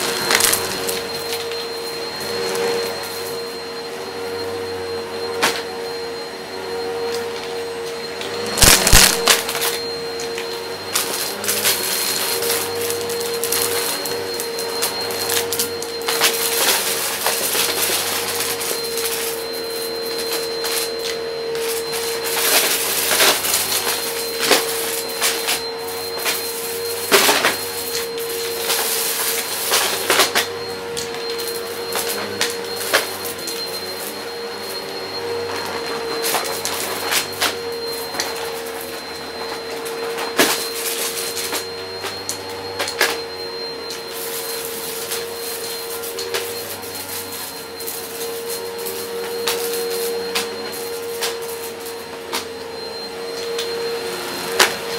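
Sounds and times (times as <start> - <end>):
vacuum cleaner running: 0.0 - 54.9
debris clicking in vacuum: 8.6 - 9.8.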